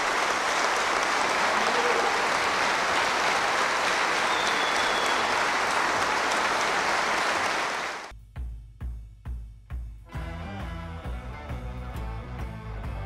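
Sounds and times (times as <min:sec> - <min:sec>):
large audience applauding: 0:00.0 - 0:08.1.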